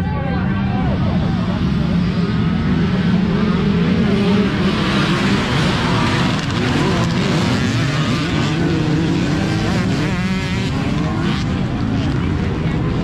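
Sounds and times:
dirt bike engines revving: 0:00.0 - 0:13.0.

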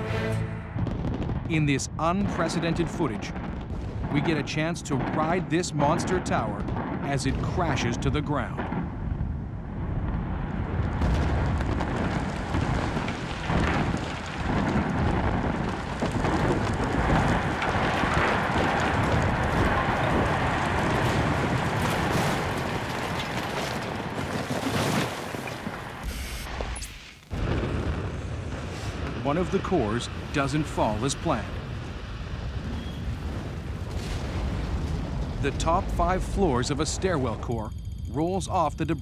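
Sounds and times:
building collapsing rumble: 0:00.0 - 0:26.0, 0:27.3 - 0:38.4
cracks and impacts: 0:10.9 - 0:26.0.

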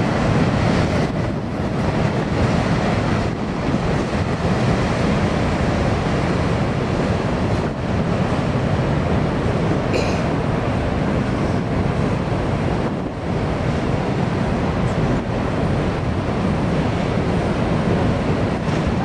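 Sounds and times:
freight cars rumbling on bridge: 0:00.0 - 0:19.0.

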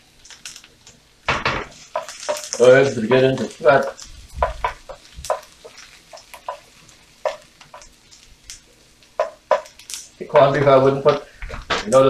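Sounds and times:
vegetables sizzling: 0:00.0 - 0:12.0
spatula scraping frying pan: 0:01.7 - 0:08.3.

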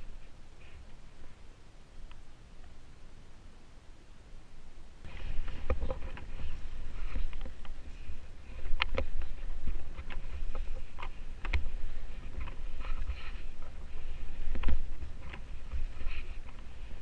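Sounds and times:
wind buffeting microphone: 0:05.0 - 0:17.0
skis scraping over crusty snow: 0:05.1 - 0:17.0.

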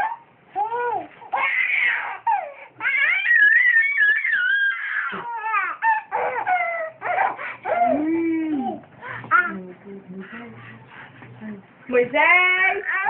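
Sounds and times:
toddler laughing: 0:00.8 - 0:09.6
toddler squealing: 0:01.4 - 0:08.1.

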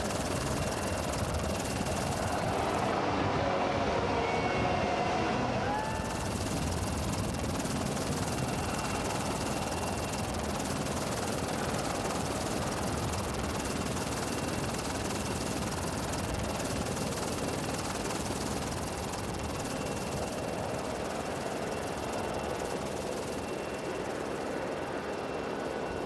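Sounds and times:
aircraft engine rush: 0:00.0 - 0:26.0
faint high whine: 0:00.0 - 0:26.0.

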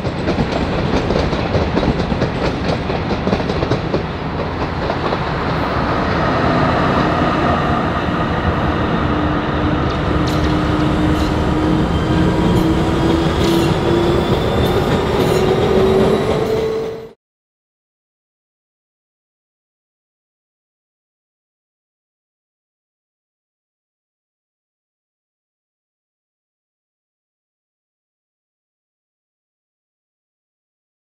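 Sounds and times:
tram wheels rumbling on rails: 0:00.0 - 0:17.2
tram motor whine: 0:04.2 - 0:17.2.

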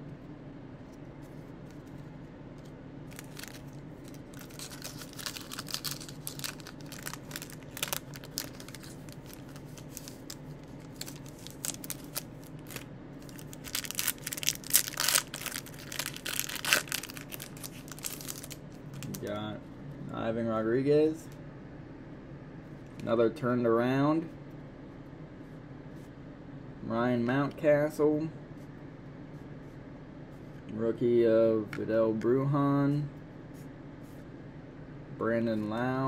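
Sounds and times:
plastic wrapper crinkling and tearing: 0:03.1 - 0:19.2.

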